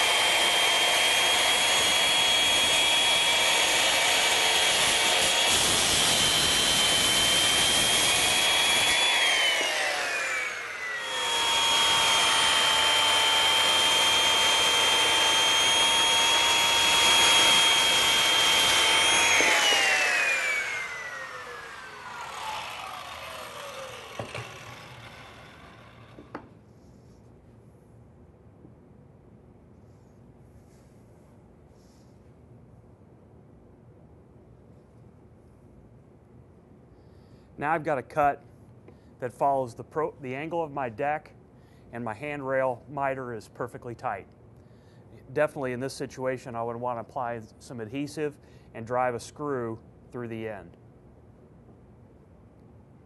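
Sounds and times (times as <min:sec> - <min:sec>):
circular saw cutting wood: 0:00.0 - 0:26.5.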